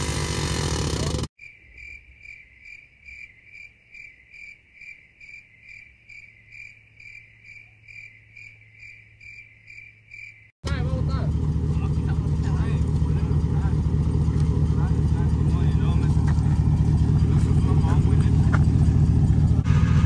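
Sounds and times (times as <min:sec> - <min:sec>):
pickup truck engine: 0:00.0 - 0:01.3, 0:10.6 - 0:20.0
cricket chirping: 0:01.4 - 0:10.6.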